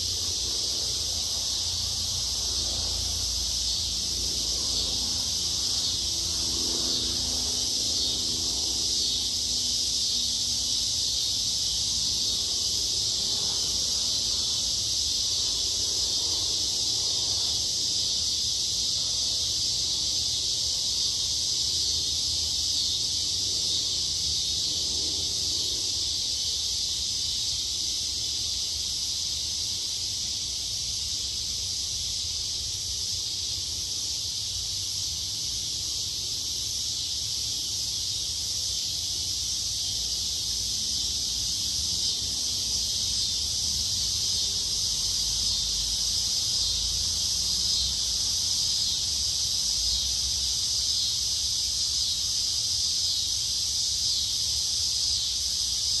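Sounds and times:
insects buzzing: 0:00.0 - 0:56.0.

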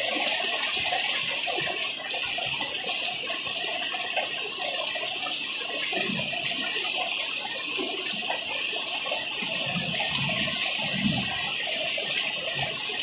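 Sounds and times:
heavy rain falling: 0:05.5 - 0:13.0.

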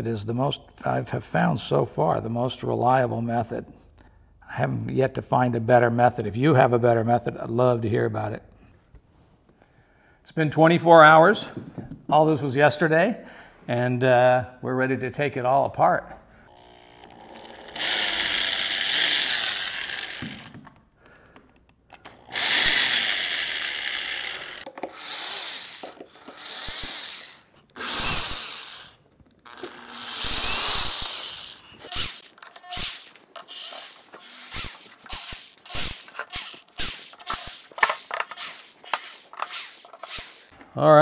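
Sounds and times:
electric drill backing out screws: 0:16.5 - 0:20.8, 0:21.9 - 0:40.5.

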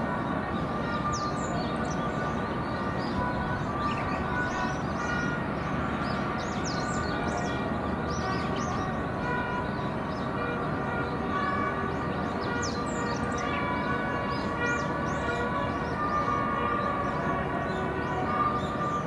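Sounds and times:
low harbour rumble: 0:00.0 - 0:19.0.

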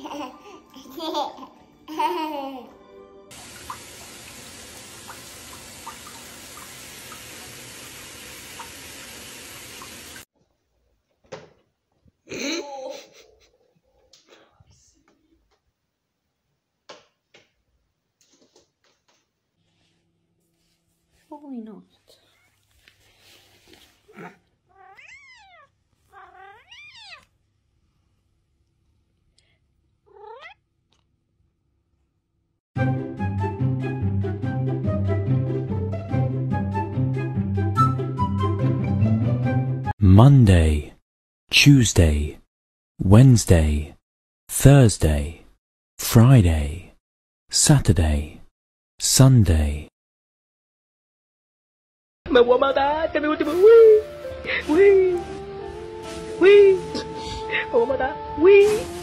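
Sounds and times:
baby laughing and babbling: 0:00.0 - 0:02.8
faint water drips: 0:03.3 - 0:10.2
water running into a bathtub: 0:03.3 - 0:10.3
cat meowing: 0:24.7 - 0:27.3, 0:30.1 - 0:30.6.

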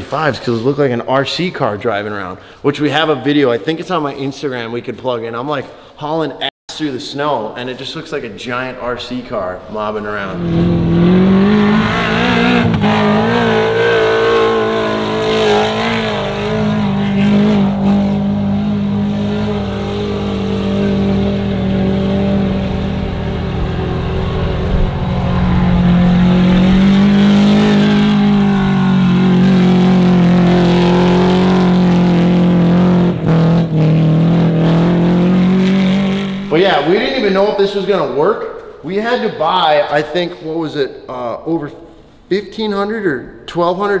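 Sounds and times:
car engine at high revs: 0:10.3 - 0:36.5.

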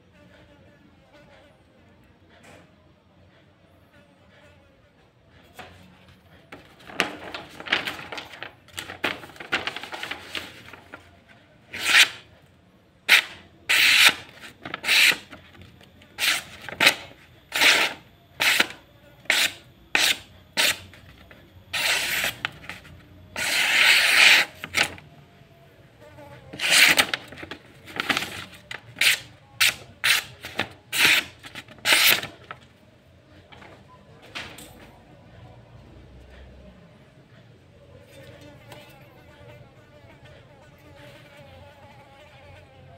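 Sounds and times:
paper rustling: 0:06.5 - 0:12.2, 0:13.1 - 0:25.0, 0:26.5 - 0:32.7
blade slicing paper: 0:11.7 - 0:12.3, 0:13.1 - 0:25.0, 0:26.5 - 0:32.6.

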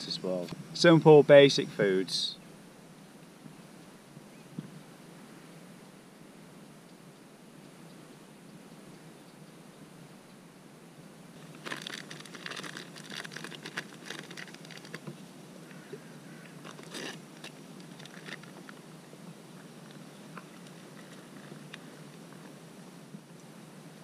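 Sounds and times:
plastic packet crinkling: 0:11.4 - 0:15.1, 0:16.6 - 0:18.6.

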